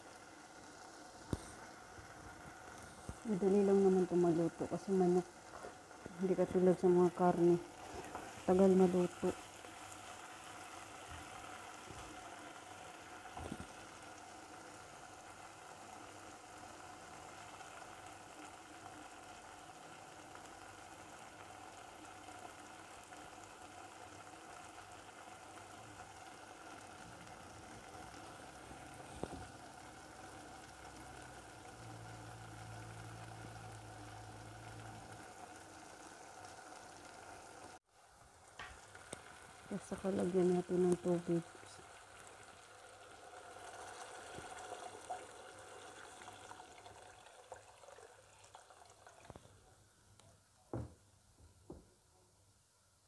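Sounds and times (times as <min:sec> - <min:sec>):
curry bubbling in a pot: 0:00.0 - 0:50.0
light knocks: 0:50.7 - 0:51.9.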